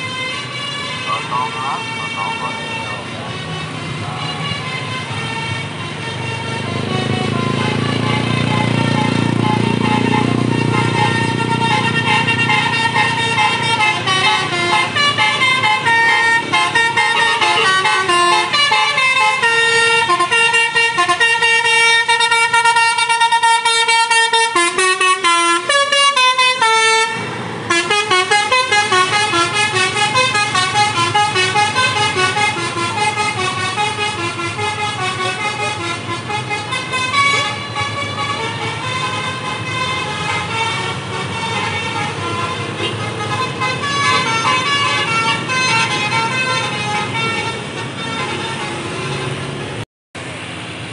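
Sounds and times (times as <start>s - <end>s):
low engine rumble: 0.0s - 21.9s
musical air horn playing tune: 0.0s - 49.4s.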